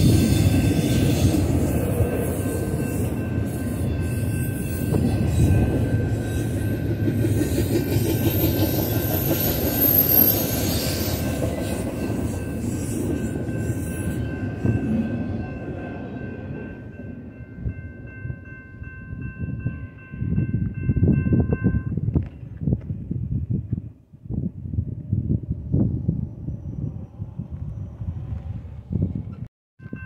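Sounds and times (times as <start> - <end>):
high wheel squeal: 0.0 - 15.4
freight train wheels rumbling: 0.0 - 30.0.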